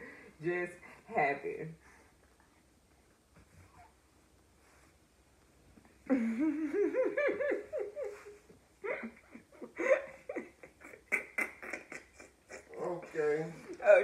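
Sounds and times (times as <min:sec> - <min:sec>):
woman laughing hard: 0:06.1 - 0:12.8.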